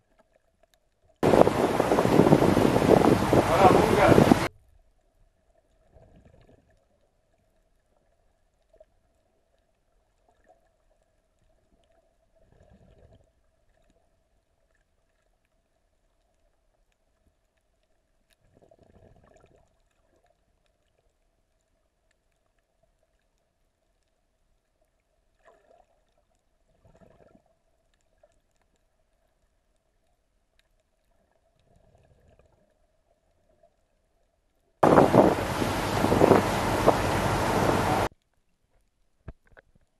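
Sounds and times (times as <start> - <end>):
soft low water swooshes: 0.0 - 38.1
faint steady hum: 34.2 - 38.1.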